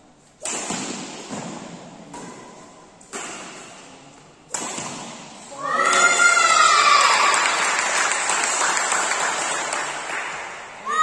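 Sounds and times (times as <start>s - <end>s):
rackets hitting shuttlecock: 0.3s - 6.0s.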